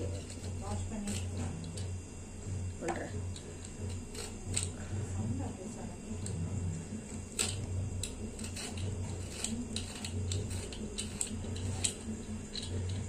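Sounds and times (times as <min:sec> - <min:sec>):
steady low hum: 0:00.0 - 0:13.0
peeler scraping gourd skin: 0:07.3 - 0:13.0.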